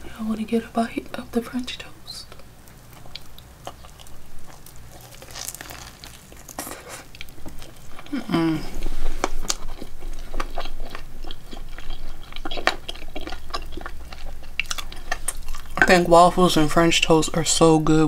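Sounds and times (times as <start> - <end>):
person chewing food: 2.3 - 16.7
person humming: 8.0 - 8.9.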